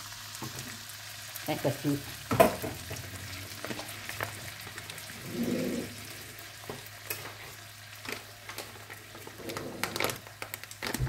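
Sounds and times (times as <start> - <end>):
coconut milk sizzling in a wok: 0.0 - 11.0.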